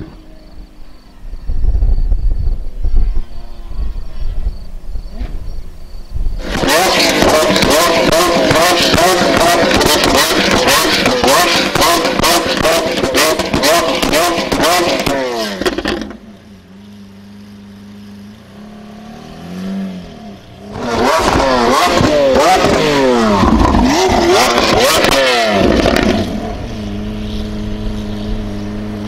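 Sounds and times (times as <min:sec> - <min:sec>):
car engine idling: 0:00.0 - 0:29.0
exhaust crackling: 0:00.0 - 0:29.0
car engine revving: 0:06.4 - 0:29.0.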